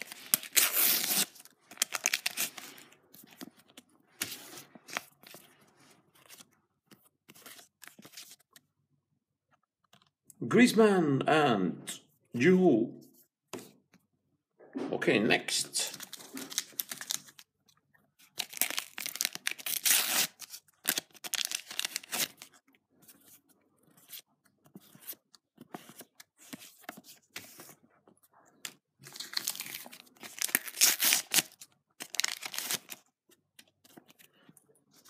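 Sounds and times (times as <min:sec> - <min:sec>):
packets tearing open: 0:00.0 - 0:02.8, 0:16.0 - 0:17.4, 0:18.4 - 0:22.5, 0:29.0 - 0:33.0.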